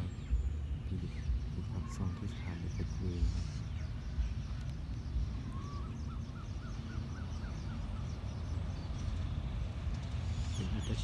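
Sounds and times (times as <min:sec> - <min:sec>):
low outdoor rumble: 0:00.0 - 0:11.0
bird whistling: 0:05.0 - 0:08.1.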